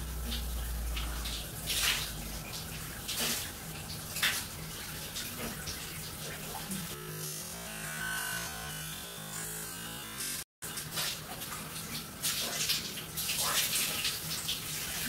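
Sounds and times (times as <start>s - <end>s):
shower spray splashing: 0.0s - 7.0s, 10.7s - 15.0s.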